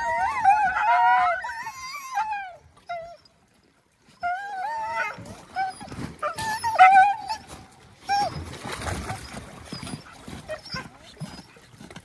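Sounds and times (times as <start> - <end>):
dogs howling and whining: 0.0 - 3.3, 4.2 - 8.4.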